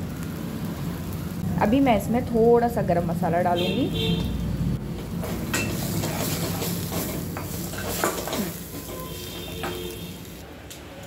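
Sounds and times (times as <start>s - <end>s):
low sizzle of frying: 0.0s - 11.0s
spoon scraping metal pan: 5.5s - 10.0s.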